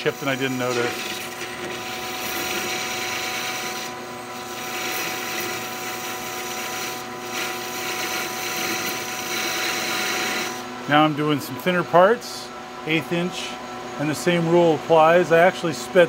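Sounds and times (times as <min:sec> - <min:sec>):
cutting tool hissing: 0:00.0 - 0:11.8
lathe droning and whining: 0:00.0 - 0:16.0.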